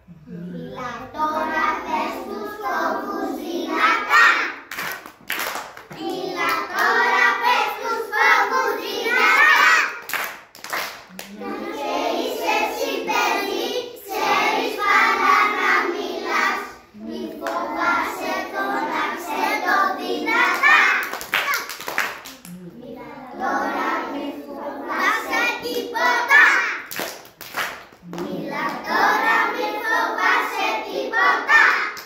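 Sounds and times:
children singing together: 0.1s - 4.7s, 5.9s - 10.1s, 11.2s - 21.2s, 22.7s - 26.9s, 28.1s - 32.0s
hand claps: 4.7s - 7.0s, 10.0s - 11.4s, 20.5s - 22.6s, 26.9s - 28.8s.

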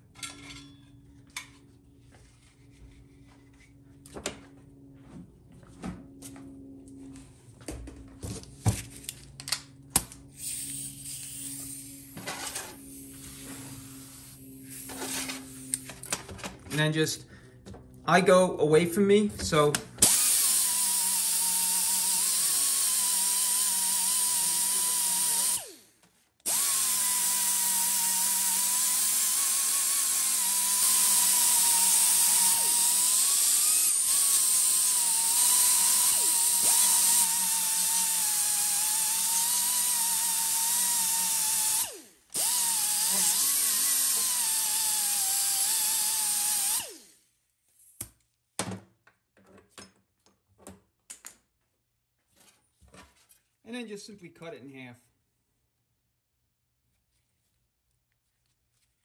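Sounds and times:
angle grinder whining: 20.0s - 47.2s.

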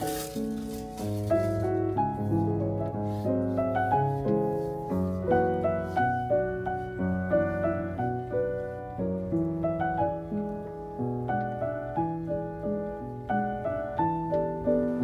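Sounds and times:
gentle piano melody: 0.0s - 15.0s.

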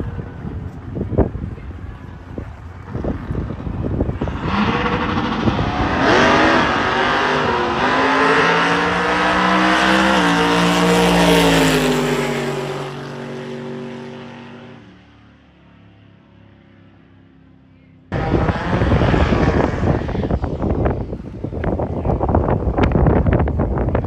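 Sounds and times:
race car engine accelerating: 2.9s - 14.8s, 18.1s - 20.6s.

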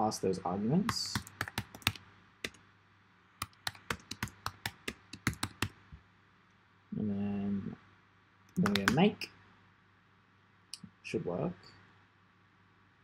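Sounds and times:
typing on keyboard: 0.9s - 2.6s, 3.4s - 5.8s, 8.6s - 9.0s.

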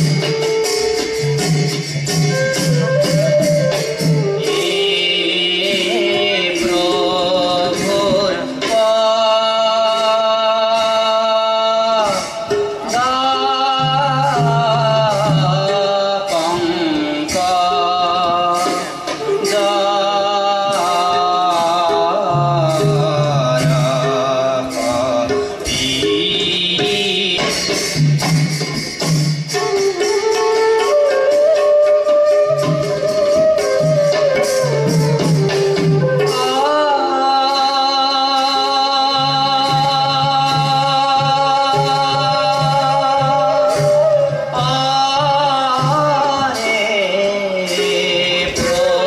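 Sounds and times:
bamboo flute: 0.0s - 9.0s, 12.0s - 28.0s, 29.0s - 49.0s
drum beat: 0.0s - 36.8s
man singing: 2.9s - 28.0s, 36.2s - 49.0s.

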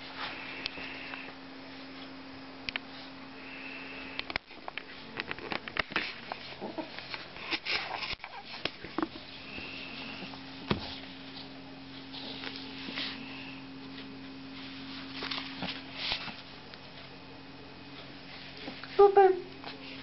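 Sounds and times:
steady low hum: 0.0s - 20.0s
puppy scuffling on carpet: 4.8s - 17.2s.

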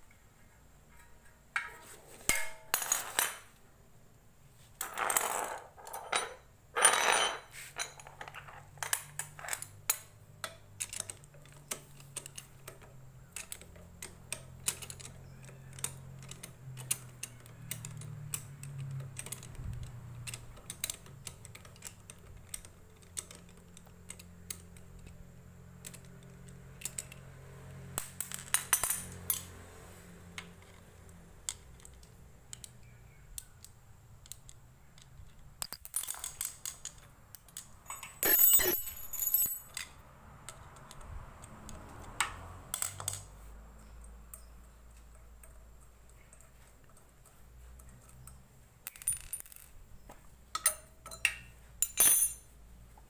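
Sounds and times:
spanners clinking on metal: 4.8s - 25.2s, 35.6s - 40.0s, 44.3s - 52.5s.

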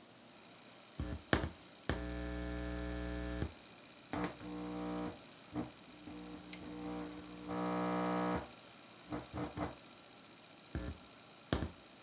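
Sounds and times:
mains hum from speaker: 0.0s - 12.0s
crackles and pops: 1.0s - 3.5s, 4.1s - 8.4s.

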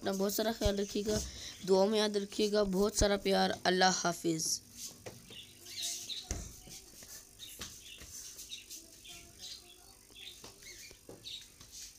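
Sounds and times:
faint bird chirps: 5.3s - 11.5s.

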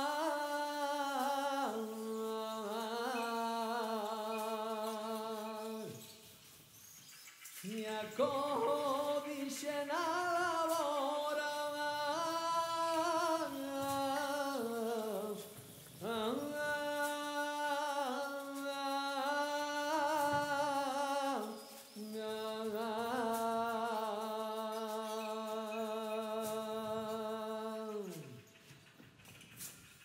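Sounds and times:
person singing without words: 0.0s - 6.6s, 7.5s - 28.5s.

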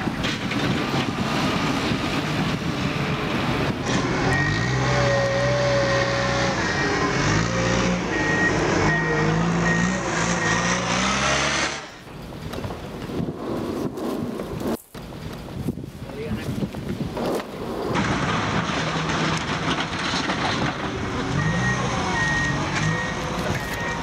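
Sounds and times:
diesel truck engine revving: 0.0s - 13.9s, 17.7s - 24.0s
reversing alarm beeping: 4.3s - 11.0s, 21.3s - 24.0s.

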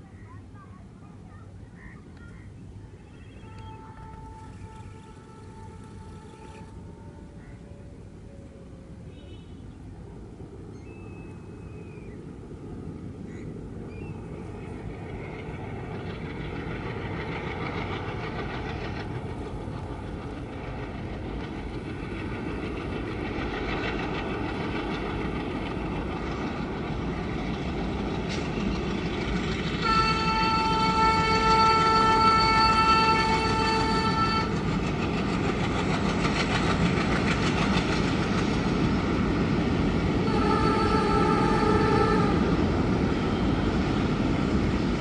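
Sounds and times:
diesel locomotives chugging: 0.0s - 45.0s
train wheels rumbling: 0.0s - 45.0s
locomotive horn blast: 3.4s - 7.2s, 29.8s - 34.6s, 40.3s - 42.4s.

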